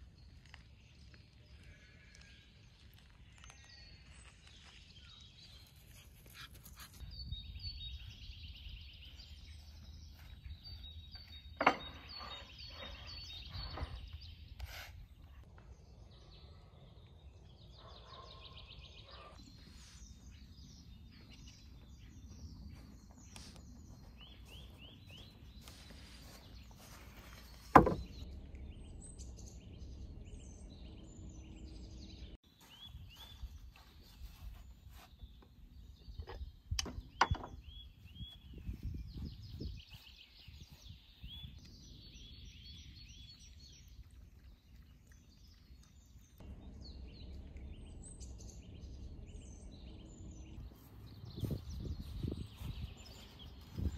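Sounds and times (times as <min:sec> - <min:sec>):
birds chirping and trilling: 0:00.2 - 0:53.9
sharp knocks: 0:27.7 - 0:28.2.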